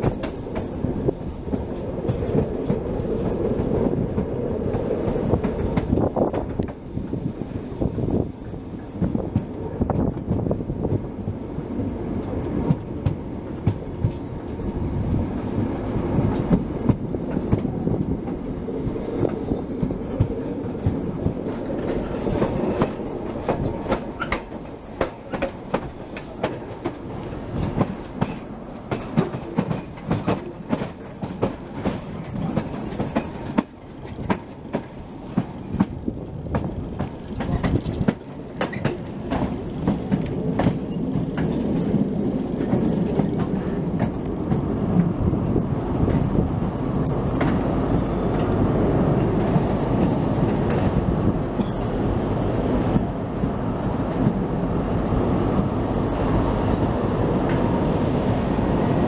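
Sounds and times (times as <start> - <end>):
train rumble: 0.0 - 59.0
wheels clattering over rail joints: 27.6 - 44.7.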